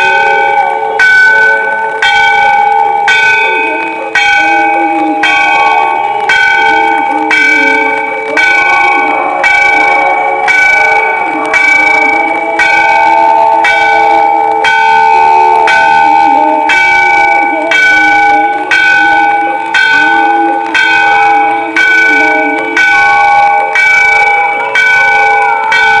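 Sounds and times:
temple bells ringing: 0:00.0 - 0:26.0.

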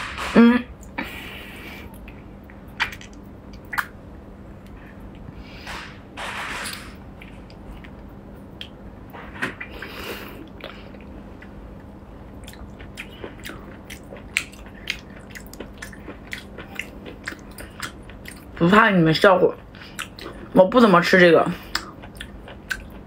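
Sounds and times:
wet clicks and smacks: 0:02.8 - 0:04.0.

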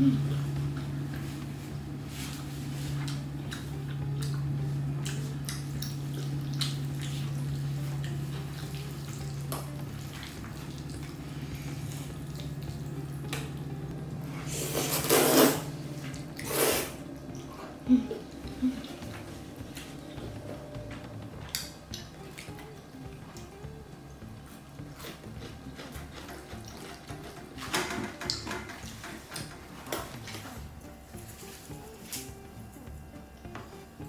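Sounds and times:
steady low hum: 0:00.0 - 0:34.0
noodle slurps: 0:14.4 - 0:15.7, 0:16.4 - 0:17.0.

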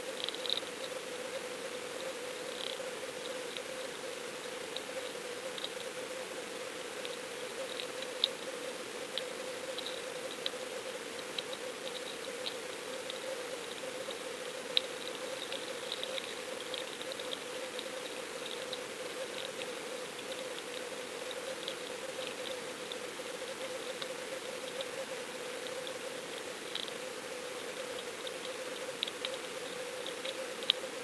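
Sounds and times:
underwater clicks and crackles: 0:00.2 - 0:01.0, 0:07.0 - 0:08.5, 0:09.1 - 0:10.6, 0:11.2 - 0:27.1, 0:27.7 - 0:31.0.

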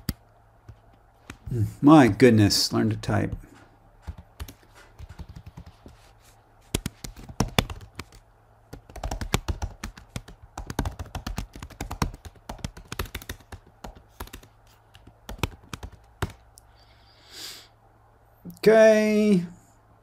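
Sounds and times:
typing on a keyboard: 0:04.1 - 0:06.0, 0:06.7 - 0:16.4.

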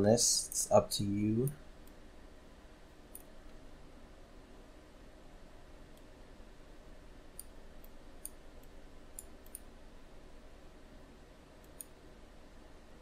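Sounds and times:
faint low hum: 0:00.0 - 0:13.0
computer mouse clicking: 0:03.1 - 0:03.3, 0:07.3 - 0:09.7, 0:11.6 - 0:12.0.

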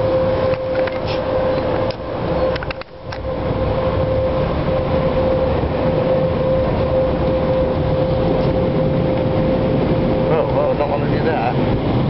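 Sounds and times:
car wash dryer blowers: 0:00.0 - 0:12.0.

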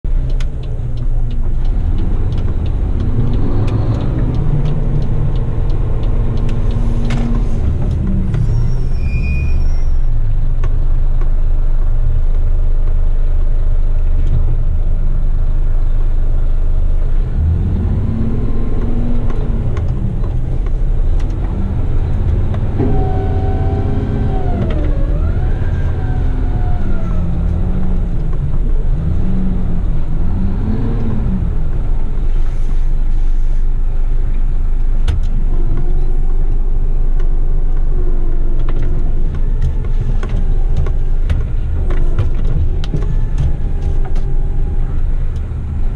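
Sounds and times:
diesel truck engine running: 0:00.1 - 0:45.9
hydraulic whine: 0:22.6 - 0:28.1.

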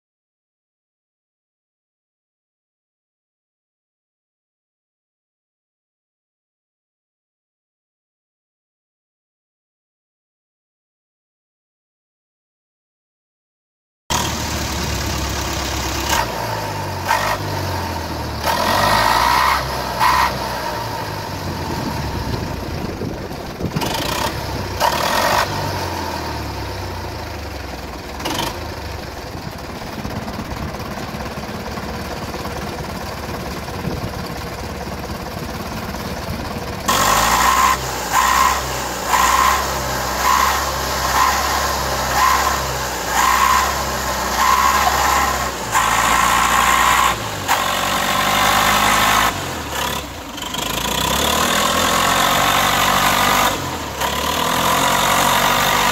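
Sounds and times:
diesel engine running: 0:14.1 - 0:55.9.

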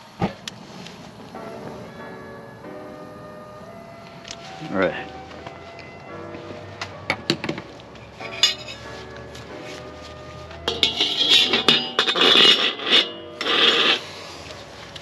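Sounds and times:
utensils clinking in a wok: 0:08.2 - 0:08.9, 0:10.6 - 0:14.0.

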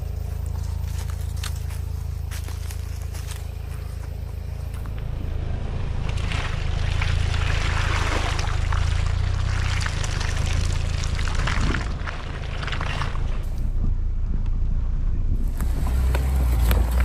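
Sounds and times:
vehicle engine drone: 0:00.0 - 0:17.0
tyre rolling through wet mud: 0:00.2 - 0:04.9, 0:06.0 - 0:13.8.

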